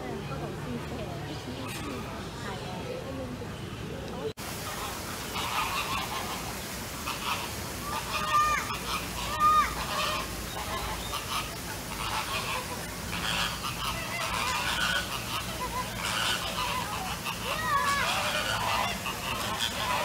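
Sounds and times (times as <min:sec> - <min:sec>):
background bird calls: 0:01.0 - 0:20.0
geese honking: 0:04.6 - 0:20.0.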